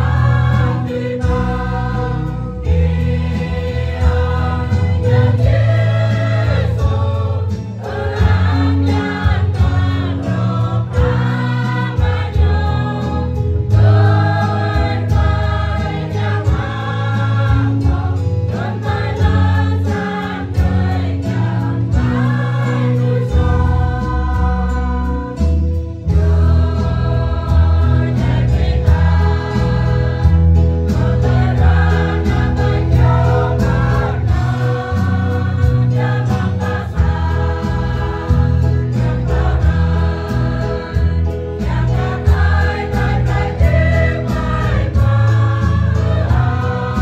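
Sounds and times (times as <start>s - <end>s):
low bass line: 0.0s - 19.8s, 20.6s - 47.0s
choir singing a hymn: 0.0s - 47.0s.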